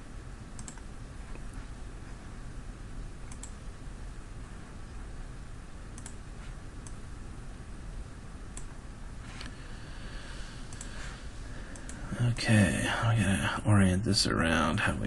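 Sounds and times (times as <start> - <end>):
steady background hiss: 0.0 - 15.0
computer mouse clicking: 0.6 - 1.4, 3.2 - 3.6, 5.9 - 6.2, 8.5 - 8.8, 10.7 - 11.0, 11.7 - 12.0.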